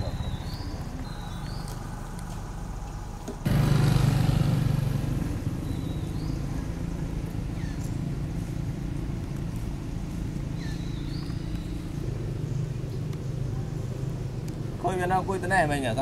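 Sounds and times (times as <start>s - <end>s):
bird chirps: 0.0s - 1.8s, 5.5s - 6.8s, 7.4s - 8.0s, 10.5s - 14.6s
engine running: 0.0s - 15.8s.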